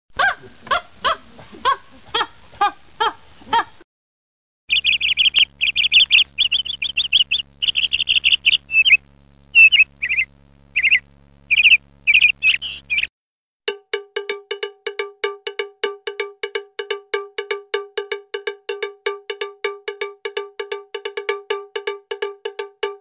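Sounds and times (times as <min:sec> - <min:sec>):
faint low steady hum: 0:04.7 - 0:13.1
honking calls: 0:04.7 - 0:13.1
rapid bird chirping: 0:04.7 - 0:13.1.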